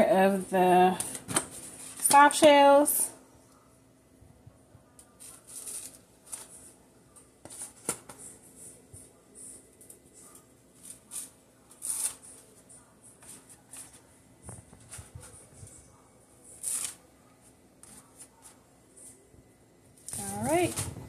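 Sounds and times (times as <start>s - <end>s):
tortillas rustling in foil pan: 1.0s - 2.4s, 5.1s - 6.8s, 7.4s - 15.8s, 16.4s - 19.2s.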